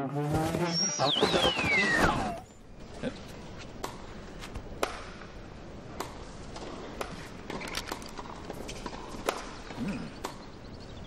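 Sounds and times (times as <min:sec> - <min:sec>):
steady background hiss: 0:00.0 - 0:11.0
tennis ball hits: 0:03.8 - 0:05.3, 0:06.0 - 0:10.5.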